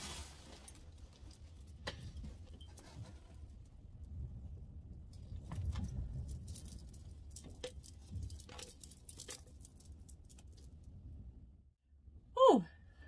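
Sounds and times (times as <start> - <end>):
handling rustle: 0.0 - 3.7, 5.2 - 10.8
beads clicking and jangling: 5.6 - 10.8.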